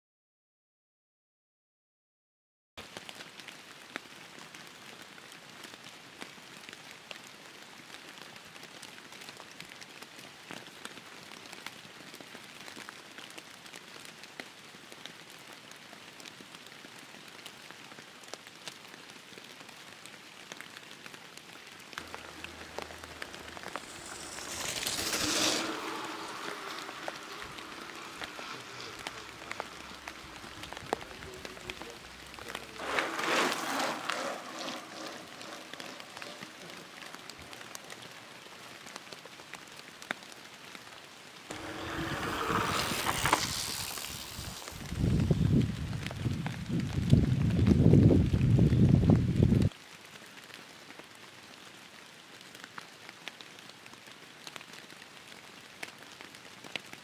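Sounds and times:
rain pattering: 2.8s - 57.0s
rushing sound: 22.0s - 38.6s, 41.5s - 45.2s.

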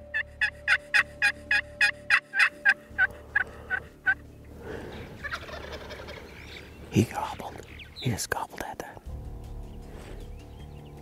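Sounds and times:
turkey call yelps: 0.1s - 4.2s, 5.2s - 6.7s
faint turkey gobble: 5.2s - 6.6s.

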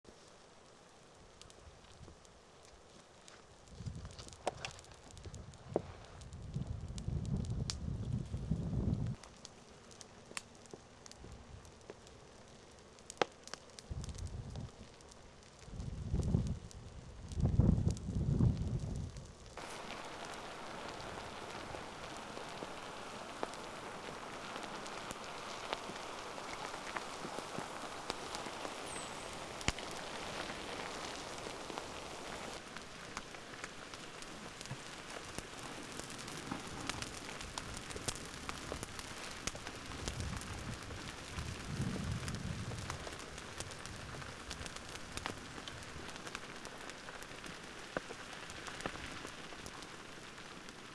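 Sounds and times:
lava crackling and hissing: 0.0s - 50.9s
small pops: 1.4s - 6.0s, 9.1s - 15.6s, 19.4s - 41.4s.

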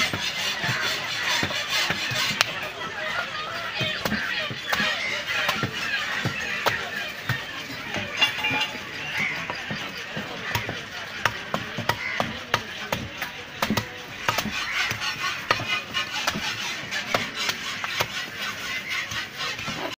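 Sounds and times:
knife chopping on wooden block: 10.5s - 18.2s.

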